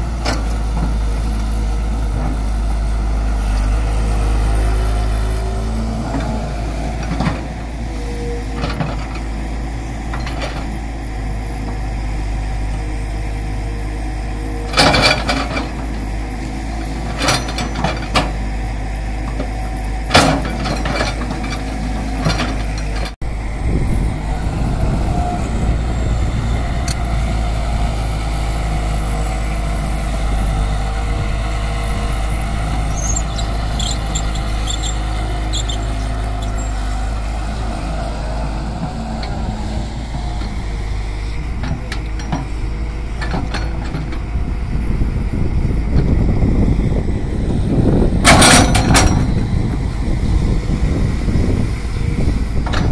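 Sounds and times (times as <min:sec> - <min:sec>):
excavator diesel engine: 0:00.0 - 0:52.9.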